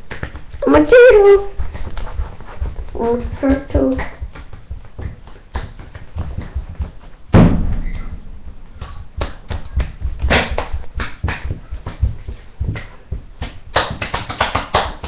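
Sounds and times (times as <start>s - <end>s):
person crawling on hard floor: 0.0s - 13.7s
heavy thump: 6.2s - 13.3s.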